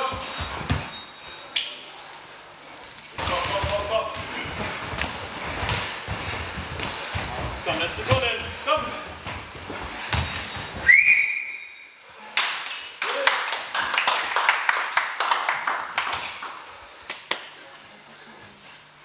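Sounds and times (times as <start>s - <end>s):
feet jumping on gym floor: 3.2s - 11.0s
high whistle: 10.8s - 12.0s.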